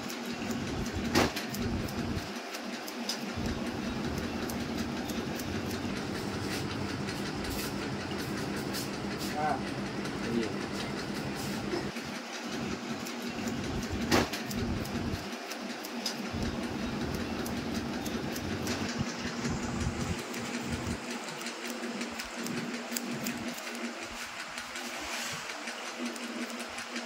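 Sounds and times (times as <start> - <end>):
steady background hum: 0.0 - 27.0
scissors snipping: 21.3 - 24.9.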